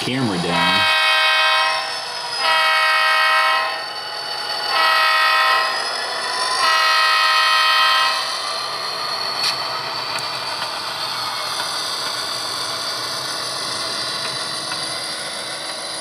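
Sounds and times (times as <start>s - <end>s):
locomotive air horn blasts: 0.6s - 3.9s, 4.7s - 5.8s, 6.6s - 8.2s.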